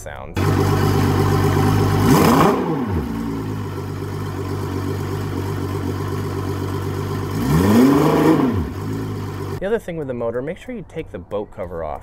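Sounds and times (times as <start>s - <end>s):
outboard motor idling: 0.4s - 9.6s.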